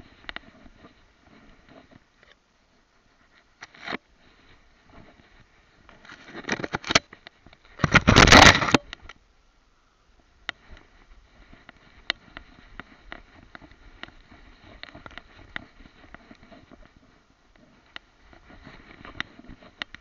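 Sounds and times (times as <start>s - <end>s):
rustling in long grass: 0.0s - 9.1s, 10.2s - 20.0s
twigs and leaves scraping: 3.2s - 8.9s, 10.6s - 20.0s.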